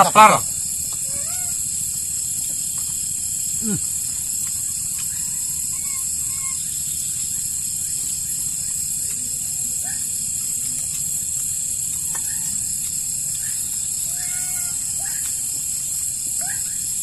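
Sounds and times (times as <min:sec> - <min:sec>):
high-pitched insect chorus: 0:00.0 - 0:17.0.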